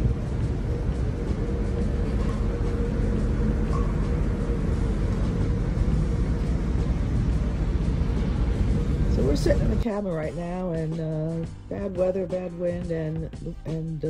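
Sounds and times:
wind buffeting microphone: 0:00.0 - 0:11.4
faint steady hum: 0:00.0 - 0:14.0.

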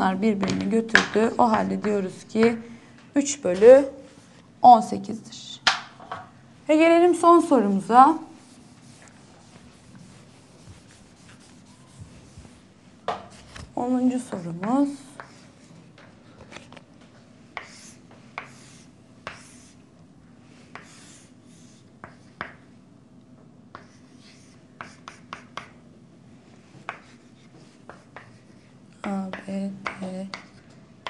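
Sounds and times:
faint steady hum: 0:00.0 - 0:31.0
chalk scraping on chalkboard: 0:08.3 - 0:12.6, 0:14.2 - 0:15.8, 0:17.6 - 0:19.8, 0:20.6 - 0:22.6, 0:23.8 - 0:25.8, 0:26.8 - 0:30.6.

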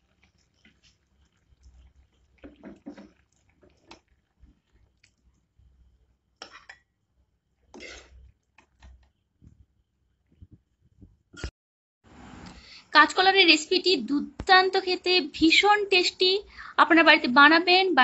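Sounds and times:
wet squelches of thick food: 0:00.0 - 0:06.7
spoon scraping metal pan: 0:07.7 - 0:08.2.

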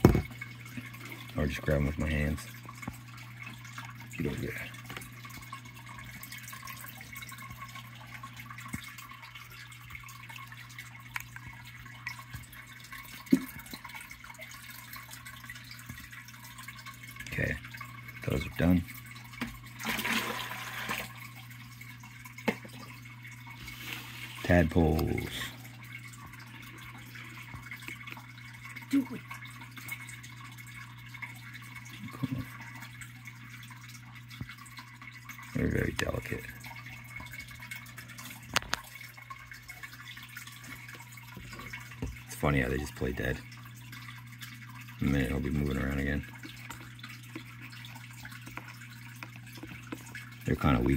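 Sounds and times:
water dripping and splashing: 0:00.0 - 0:50.9.

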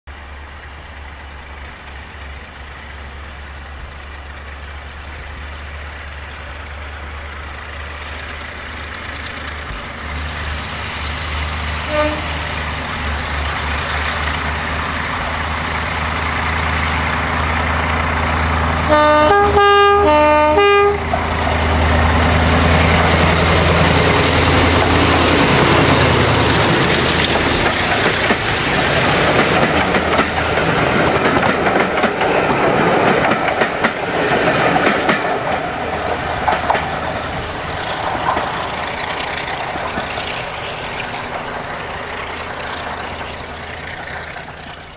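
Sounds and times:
diesel locomotive engine working hard: 0:00.1 - 0:44.9
train passing with rushing roar: 0:00.1 - 0:44.9
rail clatter: 0:00.7 - 0:19.8, 0:20.9 - 0:44.9
two-tone train horn blasts: 0:11.8 - 0:12.8, 0:18.8 - 0:21.2.

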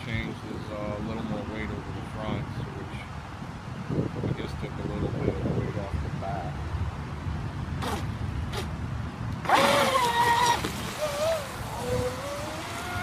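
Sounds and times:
rush of water spray: 0:09.4 - 0:13.0.

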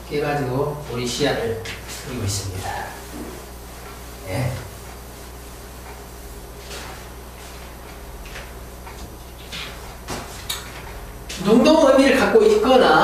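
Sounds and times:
steady low hum: 0:00.0 - 0:13.0
faint scuffs and knocks: 0:06.6 - 0:10.5.

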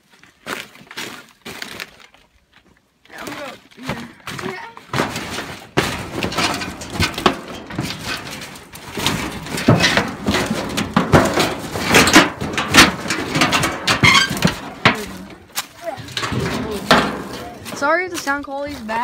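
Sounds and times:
footsteps crunching through dry leaves: 0:00.0 - 0:05.6, 0:15.0 - 0:19.0.

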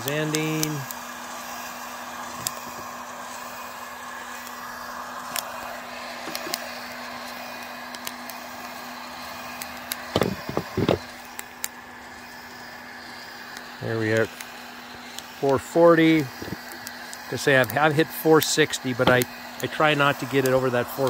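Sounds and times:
coffee roaster blowing rush: 0:00.0 - 0:21.0
coffee beans popping: 0:05.3 - 0:08.5, 0:09.5 - 0:11.8, 0:16.2 - 0:17.8, 0:18.4 - 0:19.8
handling knocks: 0:10.2 - 0:11.0.

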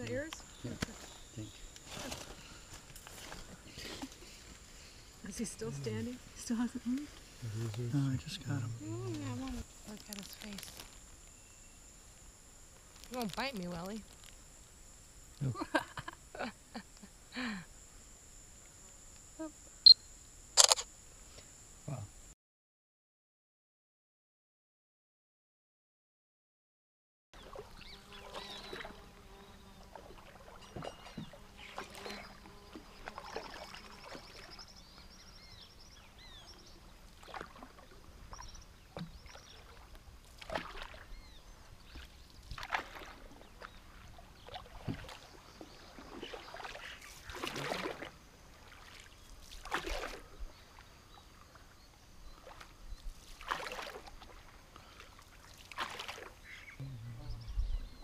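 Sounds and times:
paddles splashing in water: 0:27.4 - 0:28.9, 0:29.8 - 0:34.8, 0:37.0 - 0:51.8, 0:52.4 - 0:56.6.

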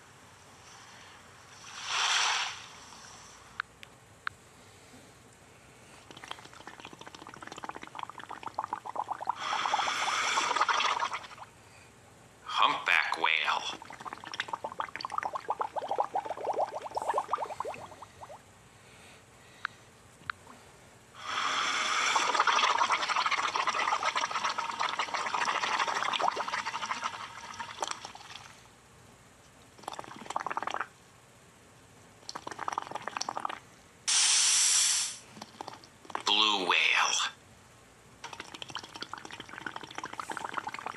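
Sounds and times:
watery spray rushing: 0:01.7 - 0:02.8.

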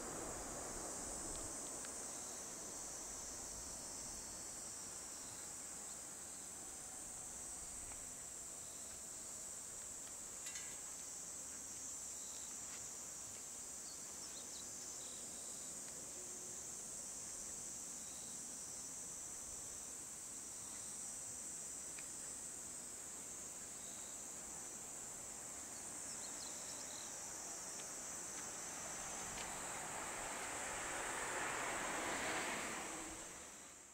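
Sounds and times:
insects buzzing: 0:00.0 - 0:33.9.

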